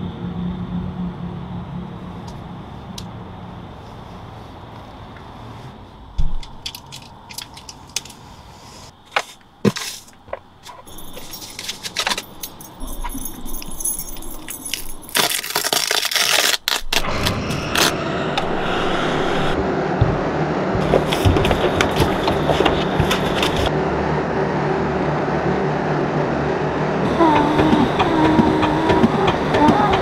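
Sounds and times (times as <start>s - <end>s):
keys jangling: 10.7s - 15.7s
loud harsh noise burst: 16.8s - 30.0s
building noisy swell: 16.9s - 30.0s.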